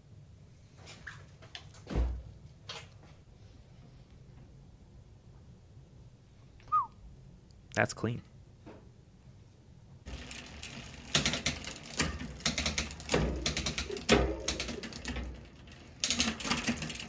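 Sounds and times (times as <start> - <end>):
bicycle chain clicking and clattering: 10.1 - 17.0.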